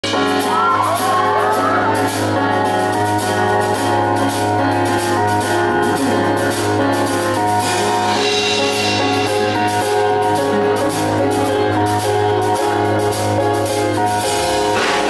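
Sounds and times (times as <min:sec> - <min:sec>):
keyboard playing held notes: 0:00.0 - 0:15.0
audience whooping: 0:00.3 - 0:02.6.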